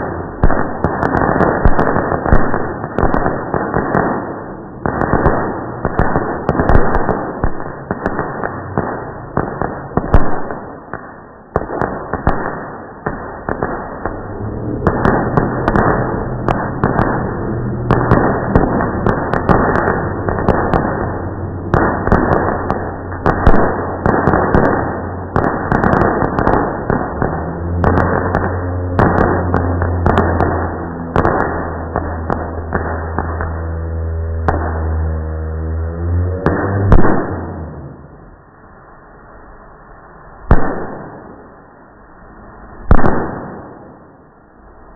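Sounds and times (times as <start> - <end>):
slowed fireworks bangs and crackle: 0.0 - 44.9
low steady hum: 13.8 - 40.5.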